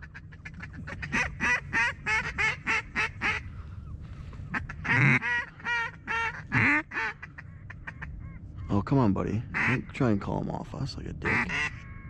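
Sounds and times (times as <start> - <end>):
duck quacking: 4.5 - 8.1, 9.6 - 9.8, 11.3 - 11.8.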